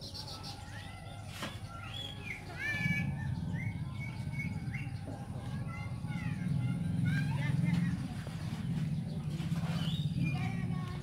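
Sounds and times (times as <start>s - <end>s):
bird chirping: 0.0s - 6.6s, 8.7s - 10.8s.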